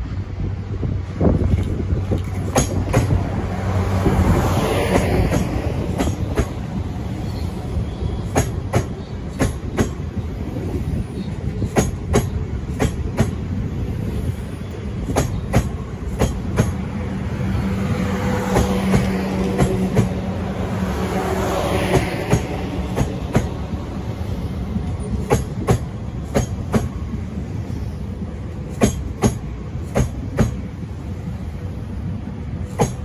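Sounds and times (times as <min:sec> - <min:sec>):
train humming: 0:00.0 - 0:33.0
train wheels clicking over rail joints: 0:01.4 - 0:03.4, 0:04.8 - 0:06.9, 0:08.2 - 0:17.0, 0:18.3 - 0:20.2, 0:21.8 - 0:23.6, 0:24.7 - 0:31.4, 0:32.5 - 0:33.0.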